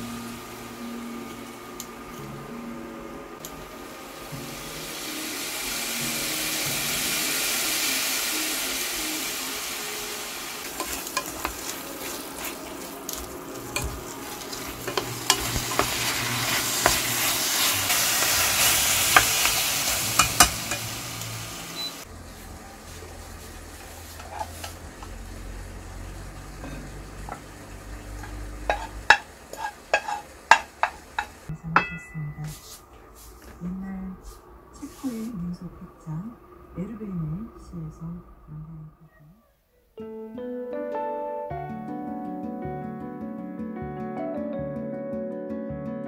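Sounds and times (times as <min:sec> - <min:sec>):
food sizzling in a pot: 0:00.0 - 0:02.6, 0:03.4 - 0:33.6
low hum: 0:00.0 - 0:07.3, 0:31.5 - 0:39.5
spatula scraping a pot: 0:24.1 - 0:24.8, 0:28.2 - 0:31.3.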